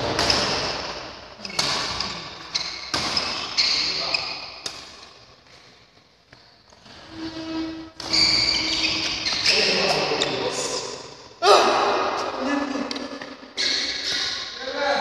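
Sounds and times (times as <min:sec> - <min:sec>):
rackets hitting shuttlecock: 0:00.0 - 0:03.6.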